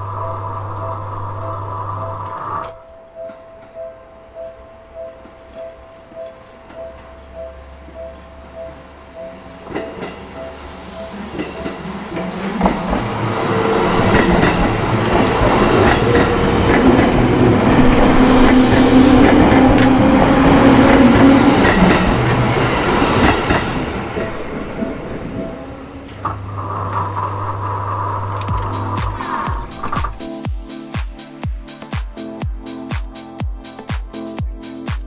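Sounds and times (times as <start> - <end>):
electric train passing: 0.0 - 34.8
wheels clacking over rail joints: 11.1 - 30.2.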